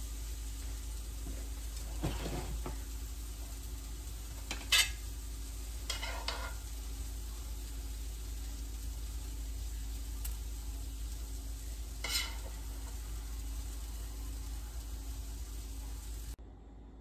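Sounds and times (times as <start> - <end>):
steady low hum: 0.0 - 17.0
tongs scraping in pan: 4.1 - 6.9, 8.6 - 16.3.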